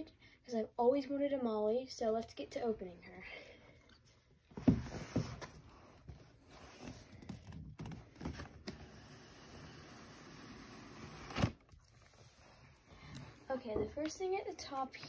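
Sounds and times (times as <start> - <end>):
cardboard scraping: 4.6 - 11.8.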